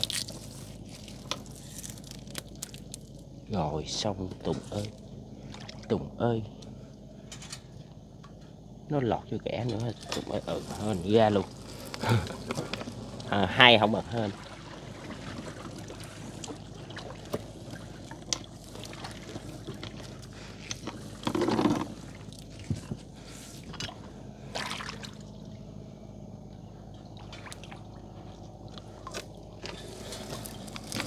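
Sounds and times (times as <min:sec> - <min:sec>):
water dripping and splashing: 0:11.5 - 0:21.0.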